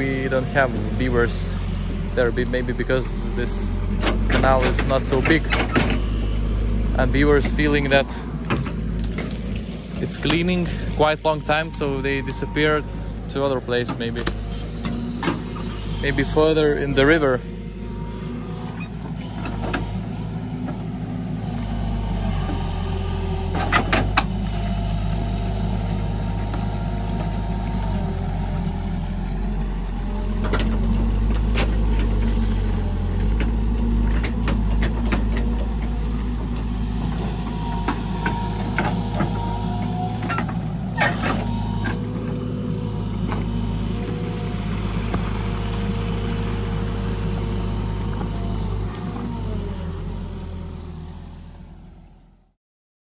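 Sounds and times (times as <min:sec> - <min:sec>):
excavator diesel engine running: 0:00.0 - 0:52.6
excavator bucket clanking: 0:00.3 - 0:06.2, 0:22.5 - 0:28.5, 0:30.2 - 0:46.0.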